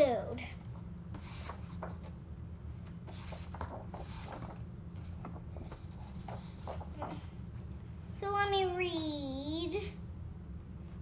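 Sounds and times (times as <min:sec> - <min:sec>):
steady low hum: 0:00.0 - 0:11.0
book pages rustling: 0:01.2 - 0:02.2, 0:02.8 - 0:07.8.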